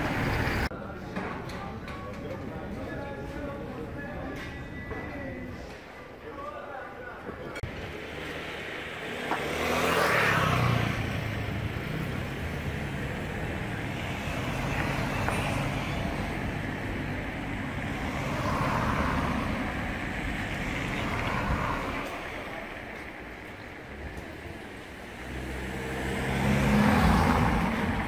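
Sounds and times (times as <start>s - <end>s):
cars passing: 0.0s - 0.7s, 7.6s - 28.0s
road traffic rumble: 0.0s - 28.0s.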